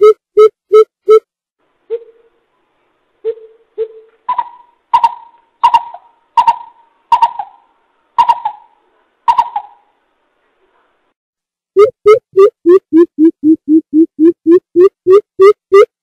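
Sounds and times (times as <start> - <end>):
bird deep hooting calls: 3.3 - 9.9.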